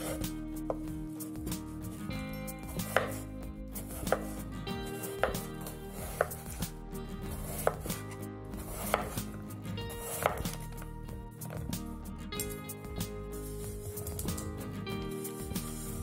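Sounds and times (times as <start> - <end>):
knife chopping on wooden board: 0.0 - 0.9, 2.8 - 4.4, 5.0 - 6.7, 7.3 - 9.4, 10.0 - 10.8.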